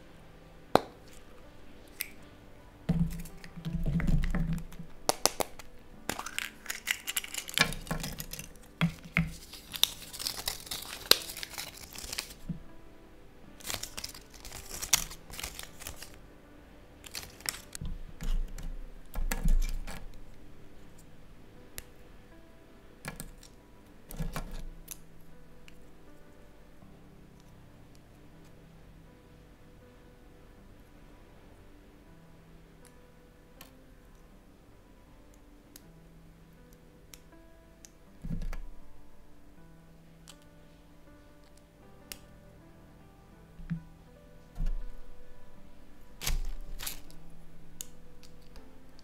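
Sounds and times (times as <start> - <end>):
chocolate egg cracking: 0.7 - 12.6, 13.6 - 16.2, 17.0 - 20.4, 23.1 - 25.8, 46.0 - 49.0
paper and plastic wrap crinkling: 2.9 - 12.7, 13.5 - 16.2, 17.0 - 18.6, 46.1 - 49.0
plastic toy pieces clicking: 3.2 - 12.4.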